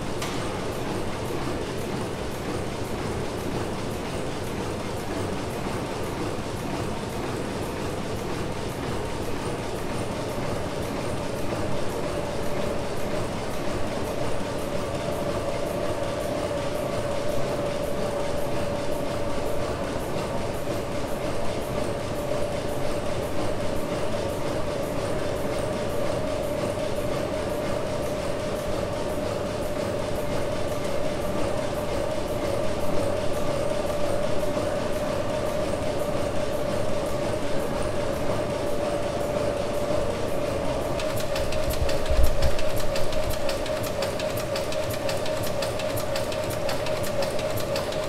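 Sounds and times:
steam engine running: 0:00.0 - 0:48.0
steam engine clattering: 0:24.6 - 0:48.0
fast regular ticking: 0:40.9 - 0:48.0.

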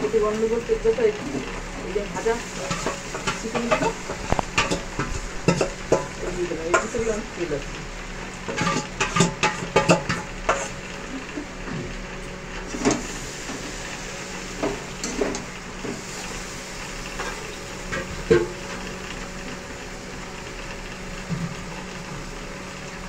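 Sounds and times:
food sizzling in oil: 0:00.0 - 0:23.0
metal spatula scraping pan: 0:08.5 - 0:10.8.

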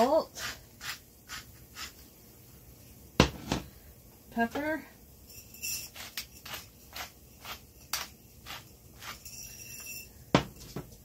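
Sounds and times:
pepper mill grinding: 0:05.6 - 0:09.9.

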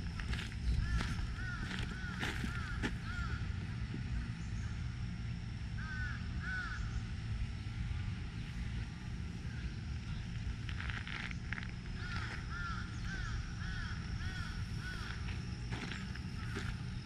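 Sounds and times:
steady low rumble: 0:00.0 - 0:17.0
crow cawing: 0:00.7 - 0:03.6, 0:05.8 - 0:07.0, 0:12.0 - 0:16.8.

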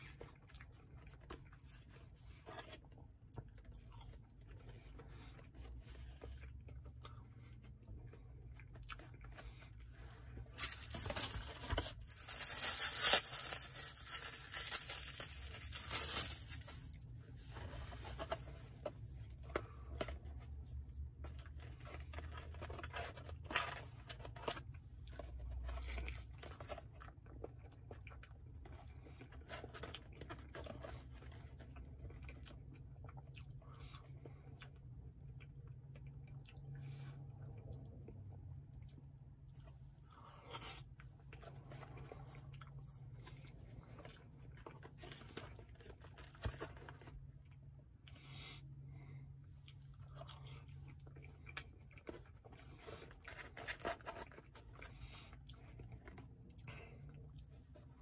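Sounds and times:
quiet chewing: 0:00.0 - 0:10.6, 0:21.3 - 0:58.0
plastic wrapper tearing and crinkling: 0:10.6 - 0:17.0.

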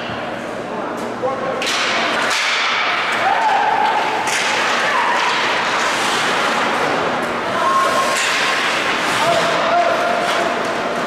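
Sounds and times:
hockey sticks clacking: 0:01.6 - 0:11.0
people shouting: 0:03.1 - 0:05.5, 0:07.5 - 0:08.5
skate blades scraping ice: 0:04.3 - 0:11.0.

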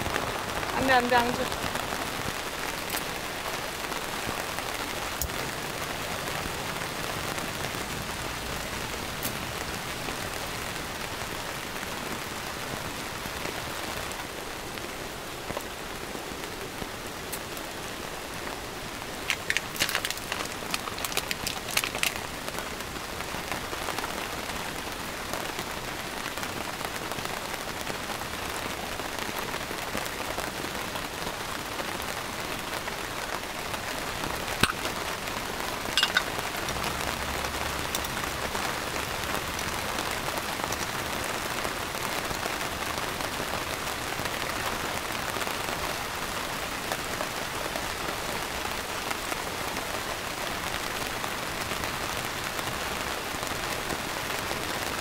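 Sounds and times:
steady rain falling: 0:00.0 - 0:55.0.

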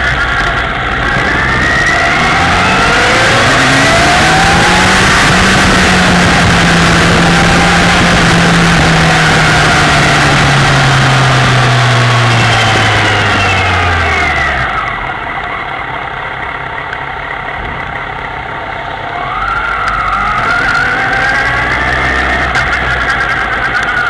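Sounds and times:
wind rush on microphone: 0:00.0 - 0:13.7
motorcycle engine accelerating: 0:00.0 - 0:24.0.

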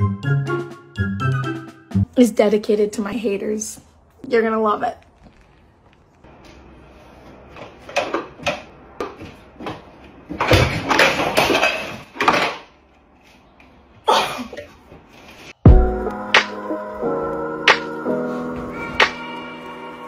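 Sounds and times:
rustling and scraping: 0:04.9 - 0:08.1, 0:14.7 - 0:15.6.

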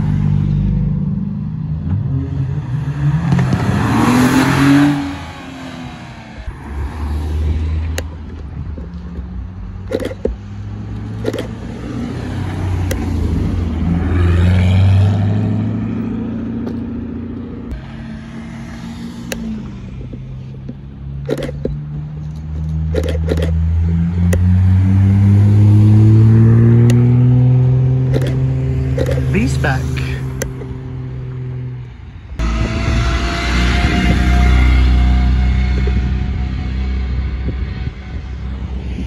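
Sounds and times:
car engines revving: 0:00.0 - 0:39.0
car accelerating past: 0:01.8 - 0:07.9, 0:11.8 - 0:17.1, 0:23.6 - 0:39.0.

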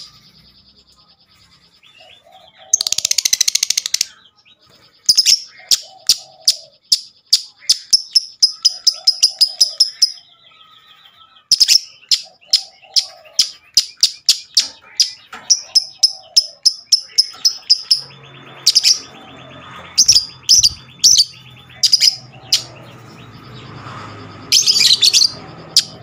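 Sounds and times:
shrill bird chirps: 0:00.0 - 0:26.0
bird chattering trill: 0:02.0 - 0:04.3, 0:04.9 - 0:10.4, 0:11.4 - 0:23.8.

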